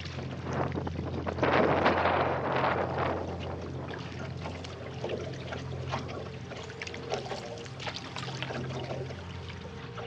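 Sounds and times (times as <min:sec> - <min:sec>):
small water splashes: 0:00.0 - 0:02.1, 0:02.9 - 0:10.0
paddle stroking through water: 0:00.0 - 0:10.0
water dripping off paddle: 0:03.9 - 0:10.0.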